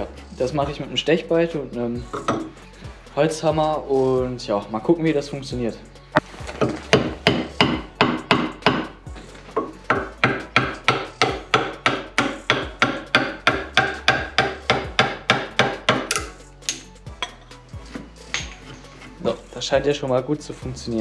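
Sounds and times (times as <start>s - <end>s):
mallet striking wood chisel: 2.1s - 2.5s, 6.6s - 9.0s, 9.6s - 17.4s.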